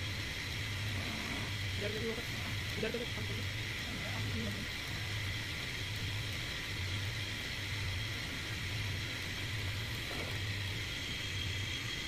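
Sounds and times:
wood lathe motor humming: 0.0 - 12.0.

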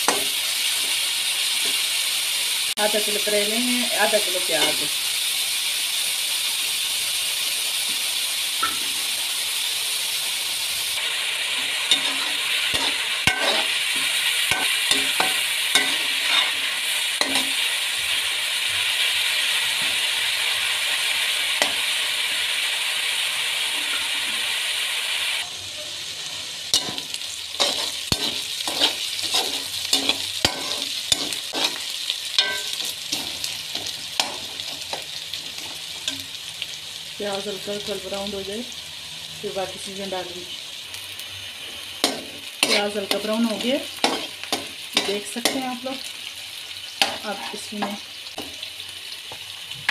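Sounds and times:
onions sizzling in oil: 0.0 - 49.9
metal spatula scraping pot: 11.9 - 17.6, 26.8 - 34.6, 42.1 - 45.7.

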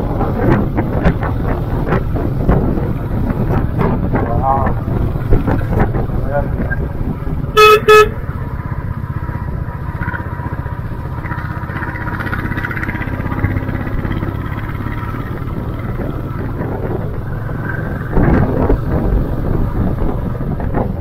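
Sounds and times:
motorcycle engine running: 0.0 - 21.0
wind noise: 0.0 - 21.0.

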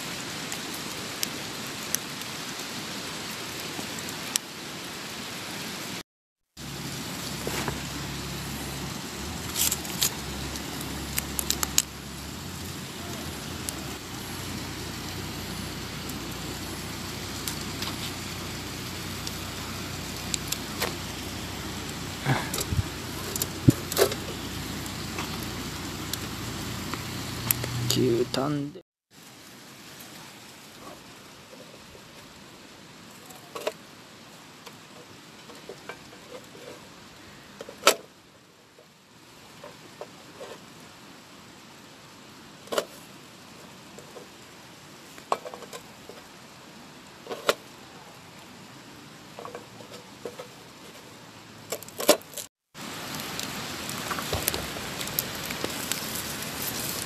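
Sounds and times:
steady rushing hiss: 0.0 - 57.0
plastic packaging crinkling: 53.2 - 57.0.

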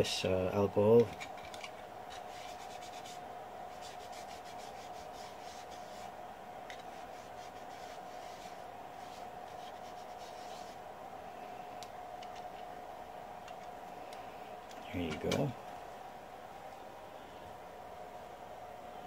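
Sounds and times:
steady background hum: 0.0 - 19.0
cotton wool rubbing strokes: 2.1 - 10.9.

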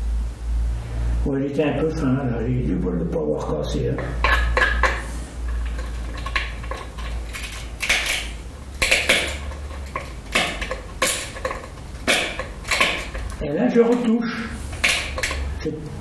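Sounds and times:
tool scraping and clicking on glass: 4.0 - 15.5.

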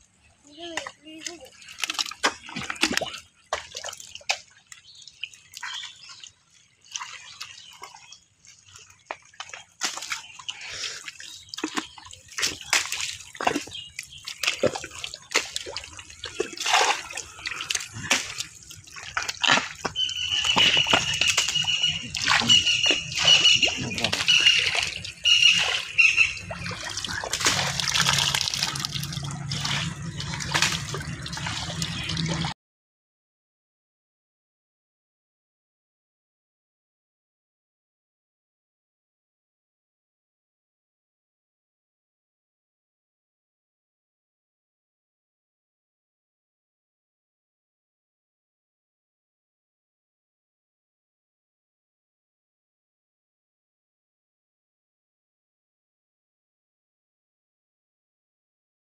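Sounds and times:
muddy water splashing: 0.0 - 32.6
fish thrashing in mud: 1.6 - 4.4, 11.6 - 32.5.

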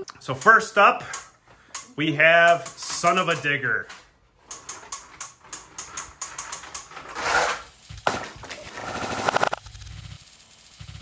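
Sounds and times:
rapid plastic clicking: 4.4 - 7.1
toy truck clatter: 4.4 - 9.6.

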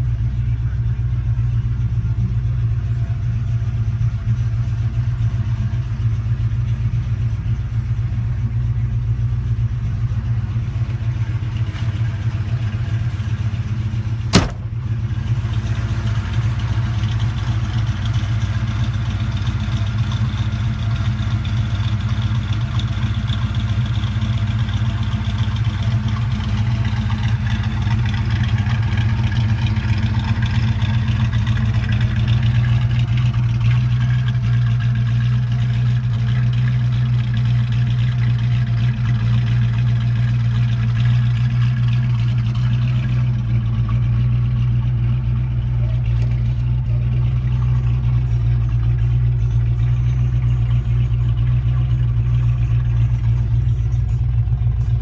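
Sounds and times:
car engine idling: 0.0 - 55.0
car door shutting: 14.2 - 14.8.

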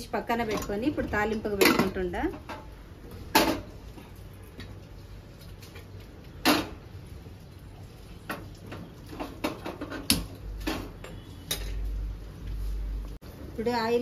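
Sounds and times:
pots clattering: 0.4 - 4.8, 8.1 - 12.0.

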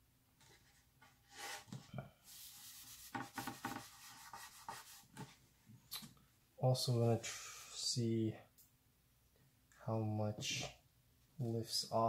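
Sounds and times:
rag scrubbing wooden palette: 2.3 - 5.3.

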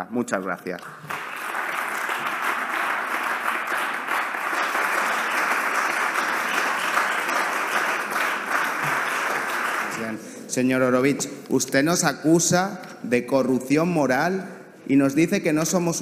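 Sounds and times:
crowd applauding: 0.8 - 10.2.

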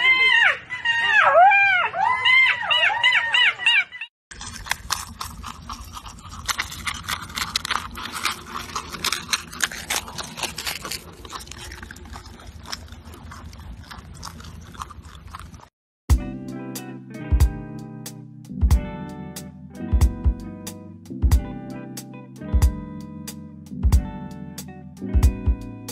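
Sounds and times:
marmots chewing dry food: 4.3 - 15.7.

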